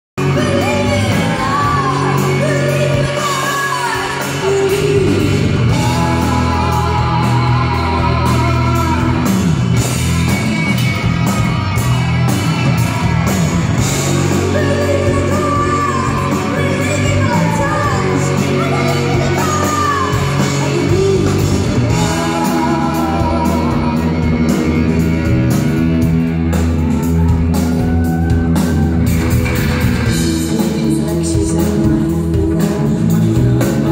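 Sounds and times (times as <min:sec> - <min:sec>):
person singing: 0:00.2 - 0:09.6, 0:14.0 - 0:25.6, 0:30.1 - 0:33.9
live rock band playing: 0:00.2 - 0:33.9.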